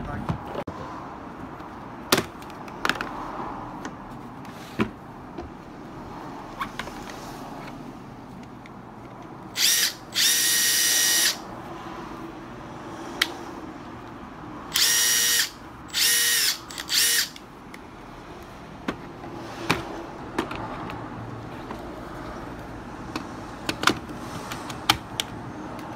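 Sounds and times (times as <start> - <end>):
impact driver motor whine: 9.6 - 11.4, 14.7 - 17.4.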